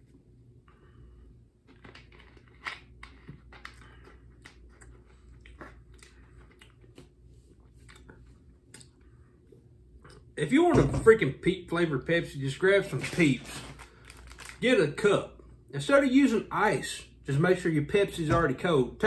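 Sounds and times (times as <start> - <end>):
person chewing: 1.6 - 9.2
plastic bottle crinkling: 12.8 - 14.6.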